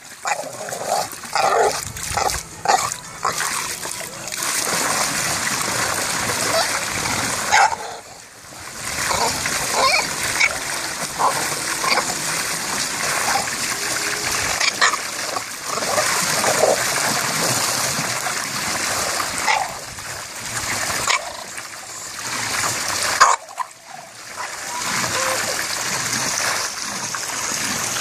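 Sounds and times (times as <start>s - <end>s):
water pouring into pool: 0.0s - 28.0s
water splashes: 0.0s - 28.0s.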